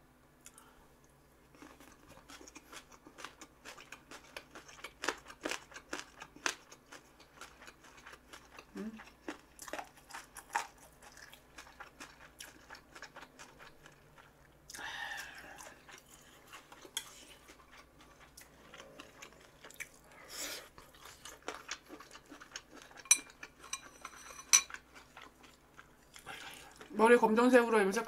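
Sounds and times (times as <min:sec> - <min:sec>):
chewing food: 0:01.5 - 0:27.0
cutlery clinking against dish: 0:23.0 - 0:24.8.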